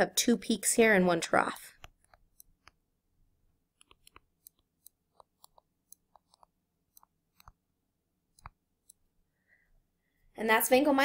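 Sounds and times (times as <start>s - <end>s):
stylus tapping on tablet: 1.8s - 2.8s, 3.7s - 7.6s, 8.3s - 9.0s.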